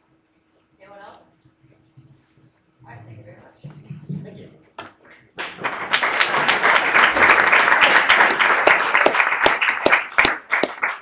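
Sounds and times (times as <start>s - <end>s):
audience applauding: 5.4s - 11.0s.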